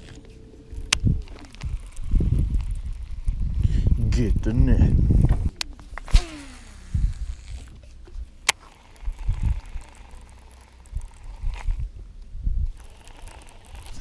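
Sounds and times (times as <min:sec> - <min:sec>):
fishing reel handling clicks: 0:05.6 - 0:11.8, 0:12.7 - 0:14.0.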